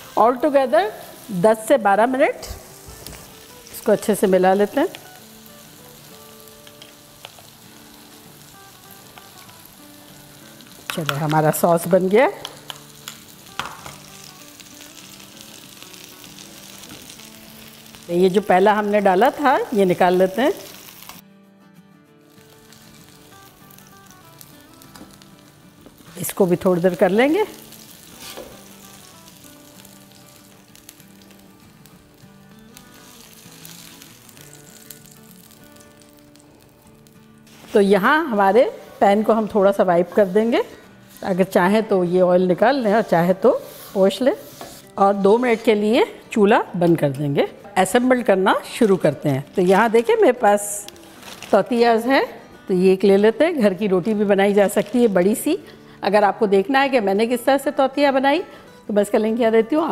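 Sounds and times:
patties sizzling in a pan: 0.0 - 21.2, 22.3 - 41.8
soft background music: 0.0 - 59.9.

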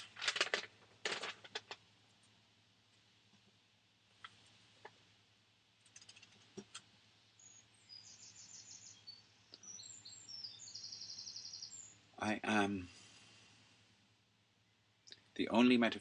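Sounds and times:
small bird chirping trills: 7.4 - 12.1.

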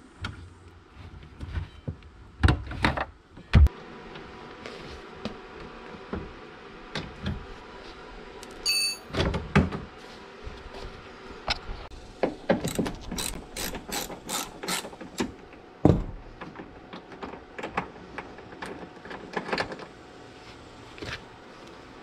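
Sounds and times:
ratchet wrench clicking: 12.7 - 14.9.

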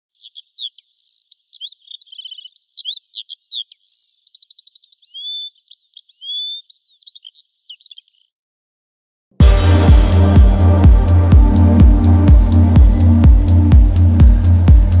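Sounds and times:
songbird singing: 0.0 - 8.4.

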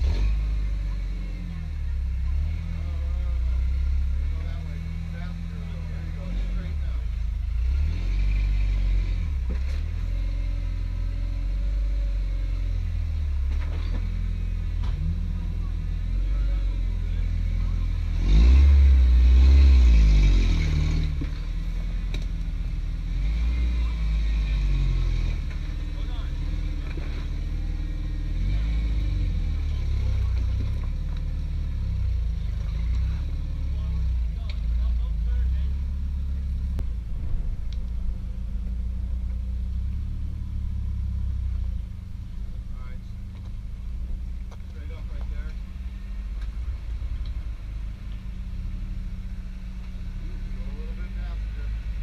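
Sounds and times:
engine rumbling under load: 0.0 - 52.0.

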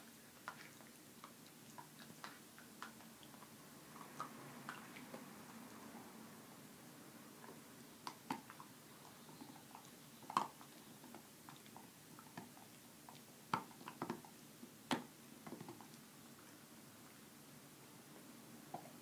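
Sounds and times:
dog gnawing on bone: 8.0 - 16.0.

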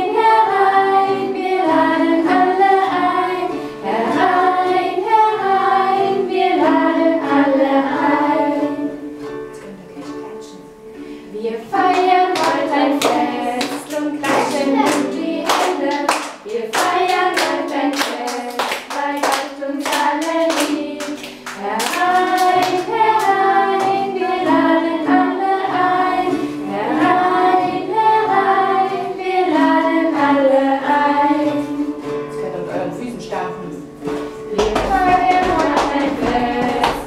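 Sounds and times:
children and adult singing: 0.0 - 10.6, 11.3 - 32.4, 34.4 - 37.0
acoustic guitar: 0.0 - 37.0
hand claps: 11.8 - 24.0, 34.1 - 37.0.

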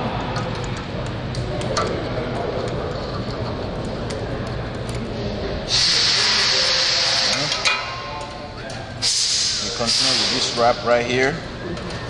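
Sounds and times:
steady background hum: 0.0 - 12.0
loud steady hiss: 5.7 - 7.7, 9.0 - 10.9.

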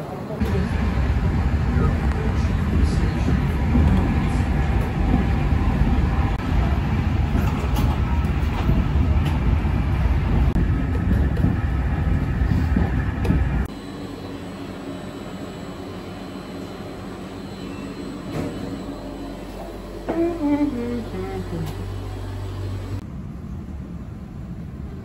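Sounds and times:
stationary train hum: 0.0 - 25.0
train wheels rumbling on rails: 0.4 - 13.7.

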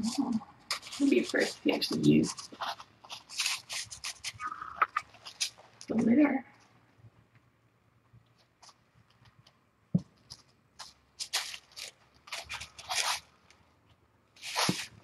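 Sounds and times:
kitten scratching in cat litter: 0.0 - 5.8, 10.2 - 13.4, 14.4 - 15.0.

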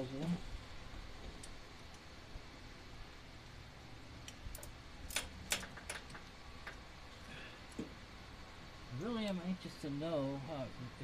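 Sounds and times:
faint steady hum: 0.0 - 11.0
tools clicking against metal: 4.3 - 6.8.

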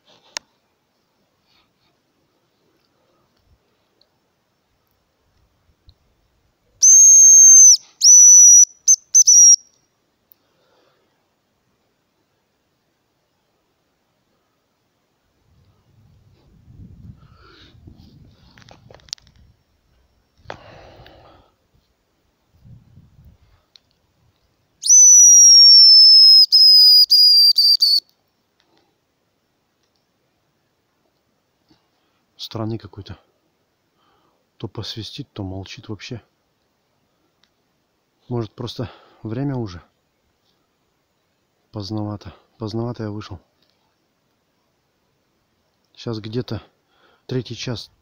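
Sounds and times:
grouse call whistles: 6.8 - 9.7, 24.8 - 28.0.

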